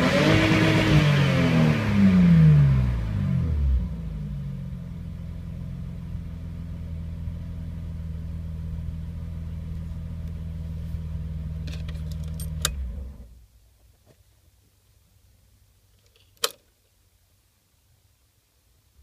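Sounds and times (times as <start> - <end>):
car engine idling: 2.6 - 13.4
keys jingling: 11.8 - 12.7.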